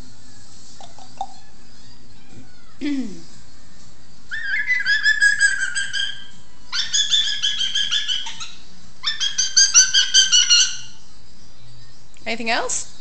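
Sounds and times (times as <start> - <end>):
parrot calling high notes: 4.3 - 11.0.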